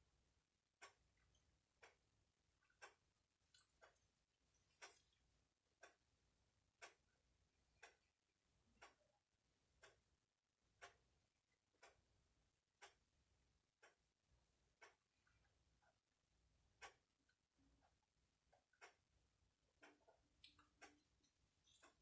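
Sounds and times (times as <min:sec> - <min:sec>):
clock ticking: 0:00.8 - 0:02.1, 0:02.7 - 0:05.2, 0:05.8 - 0:06.1, 0:06.8 - 0:07.1, 0:07.8 - 0:08.1, 0:08.8 - 0:09.1, 0:10.8 - 0:11.1, 0:12.8 - 0:13.1, 0:14.8 - 0:15.0, 0:16.8 - 0:17.2, 0:17.8 - 0:19.1, 0:19.8 - 0:22.0.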